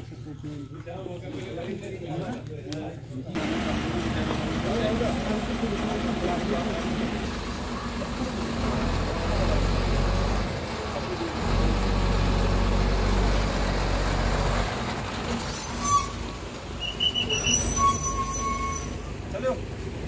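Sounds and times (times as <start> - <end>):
truck engine humming: 3.4 - 18.0.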